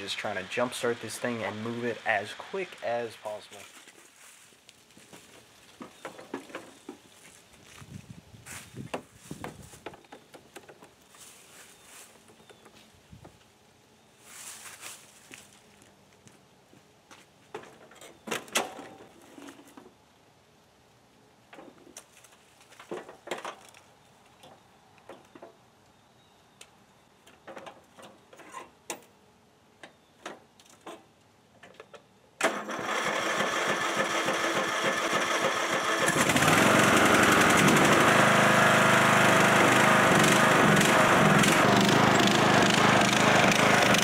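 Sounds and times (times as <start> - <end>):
lawn mower engine starting and running: 0.0 - 3.6, 32.4 - 44.0
small clicks and knocks: 21.5 - 25.6.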